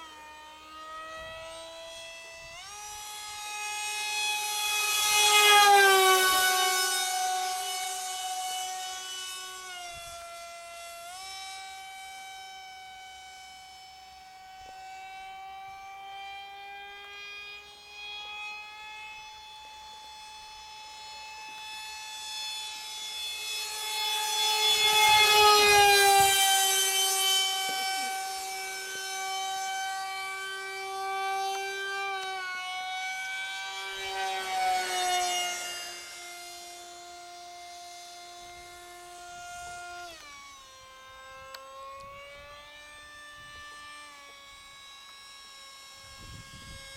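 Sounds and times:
jet engine whining: 0.0 - 46.9.

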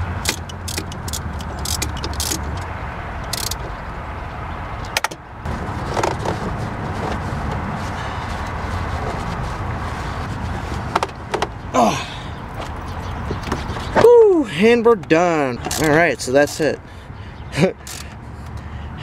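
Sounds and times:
socket ratchet clicking: 0.1 - 2.7, 3.3 - 3.6, 15.6 - 16.0, 17.8 - 18.2.

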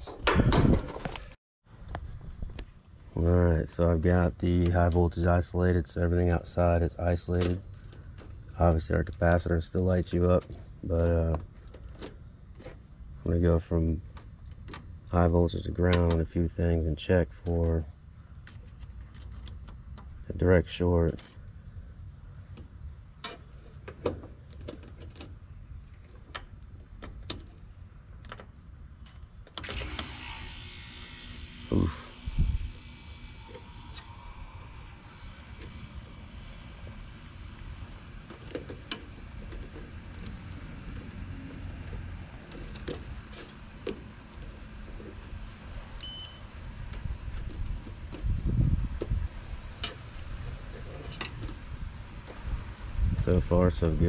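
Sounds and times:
steady low rumble: 30.6 - 54.0
meter beep: 46.0 - 46.5.

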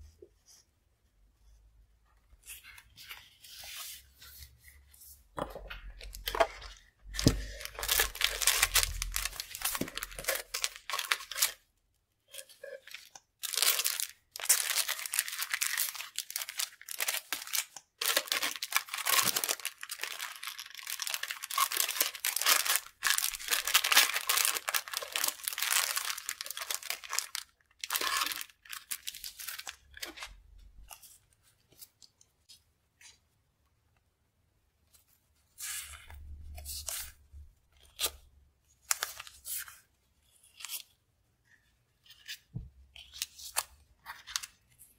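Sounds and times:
plastic sleeves crinkling: 5.7 - 11.6, 12.3 - 32.0.

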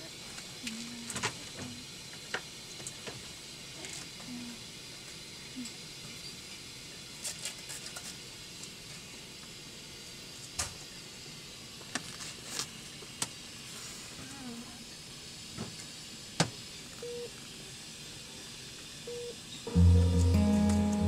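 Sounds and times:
steady hiss: 0.0 - 21.0
patient monitor beeps: 17.0 - 17.3, 19.1 - 21.0.

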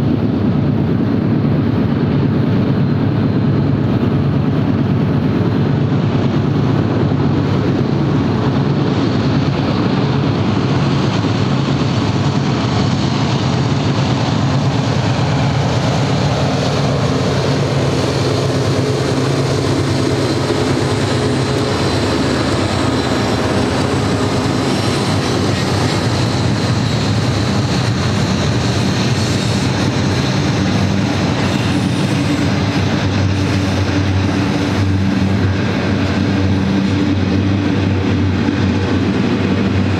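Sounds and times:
diesel locomotive engine drone: 0.0 - 39.9
train wheels rolling on rails: 0.0 - 39.9.

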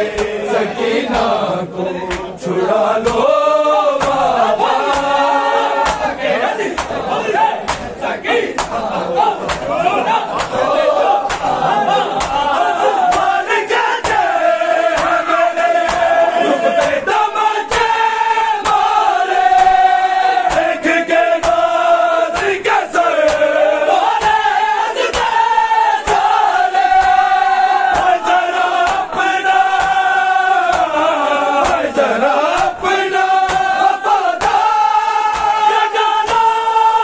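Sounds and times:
men singing a lament: 0.0 - 37.0
hands striking chests: 11.2 - 12.4.

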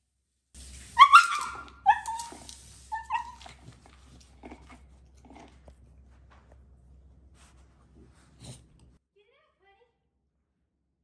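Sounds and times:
dog barking: 1.0 - 2.4.

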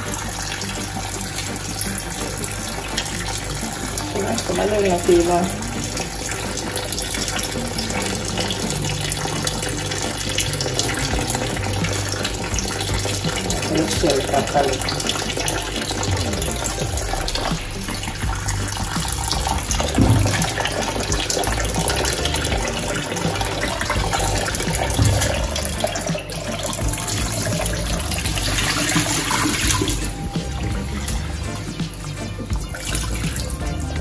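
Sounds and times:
tap running into a bowl: 0.0 - 31.2
water splashing as hands rinse: 0.0 - 34.0
soft knocks: 20.0 - 20.7.

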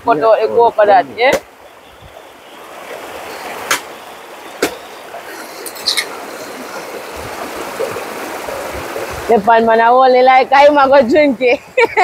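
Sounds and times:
stream water rushing: 0.0 - 12.0
sharp knocks: 3.6 - 3.9, 4.6 - 4.9.

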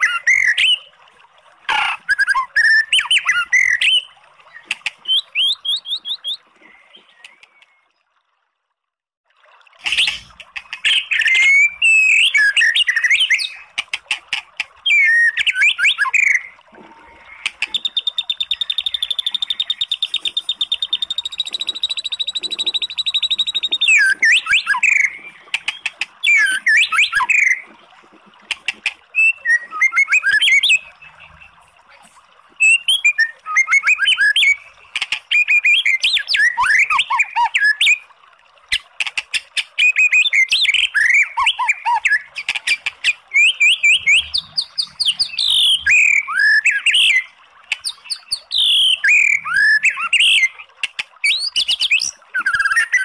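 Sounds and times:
bird whistling song: 2.0 - 7.8, 10.9 - 13.7, 14.8 - 16.6, 17.7 - 27.6, 29.1 - 31.5, 32.6 - 34.7, 35.3 - 38.0, 39.8 - 42.3, 43.0 - 50.6, 51.2 - 53.0.

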